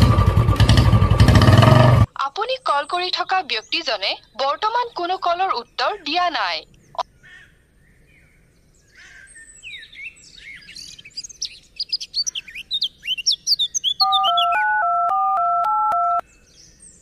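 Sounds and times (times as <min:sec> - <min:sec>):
small birds chirping: 0:02.4 - 0:14.8
phone keypad dialing beeps: 0:14.0 - 0:16.2.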